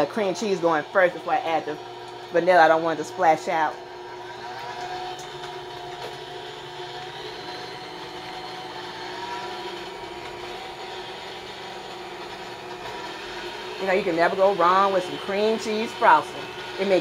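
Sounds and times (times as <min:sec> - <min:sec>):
stand mixer running: 0:00.0 - 0:17.0.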